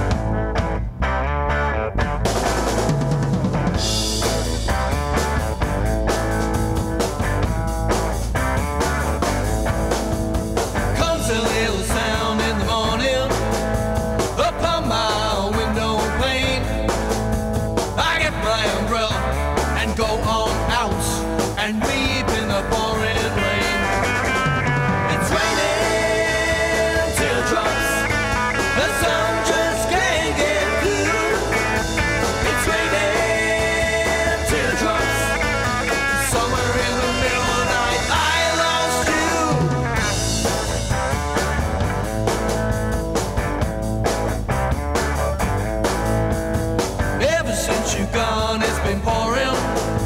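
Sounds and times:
drum kit: 0:00.0 - 0:50.0
electric guitar: 0:00.0 - 0:50.0
man singing into microphone: 0:11.0 - 0:13.5, 0:14.4 - 0:17.0, 0:18.0 - 0:24.1, 0:25.1 - 0:28.1, 0:28.7 - 0:31.7, 0:32.4 - 0:35.6, 0:36.2 - 0:39.8, 0:47.2 - 0:49.8
electric guitar through amplifier: 0:22.9 - 0:47.1.

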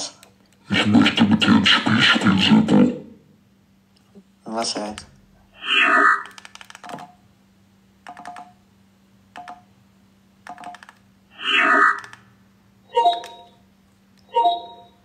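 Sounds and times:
steady low hum: 0:00.0 - 0:06.2
rapid clicking bursts: 0:06.2 - 0:07.1, 0:08.0 - 0:08.6, 0:10.4 - 0:11.0.

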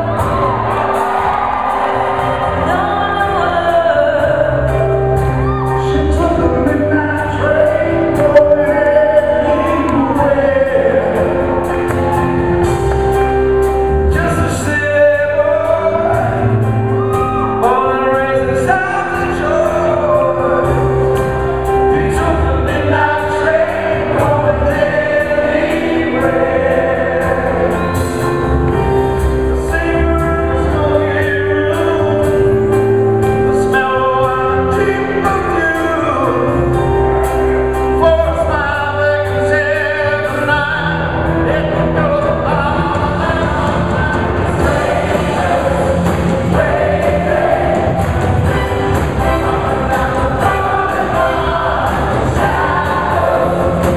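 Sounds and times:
band playing: 0:00.0 - 0:53.9
group of people singing: 0:06.8 - 0:12.2, 0:22.0 - 0:28.3, 0:40.0 - 0:53.9.

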